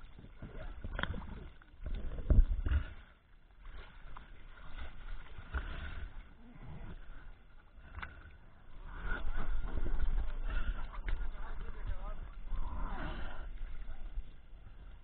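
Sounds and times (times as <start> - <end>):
knocks and splashes: 0.0 - 6.2
water sloshing against inflatable boat: 0.0 - 15.0.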